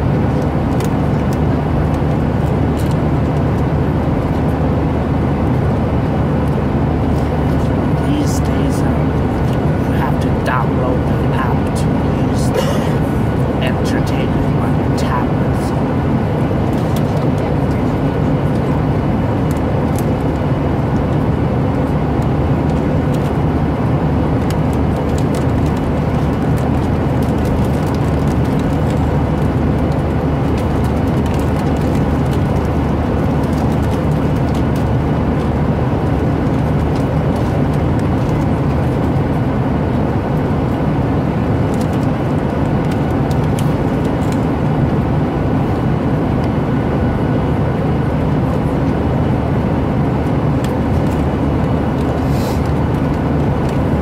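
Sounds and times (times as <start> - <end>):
airliner cabin drone: 0.0 - 54.0.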